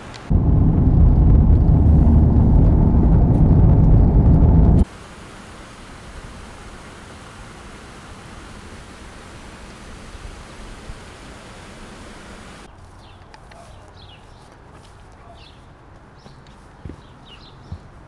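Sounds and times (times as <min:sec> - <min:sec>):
steady rushing noise: 0:00.2 - 0:04.9
small birds chirping: 0:12.9 - 0:14.5, 0:15.2 - 0:18.0.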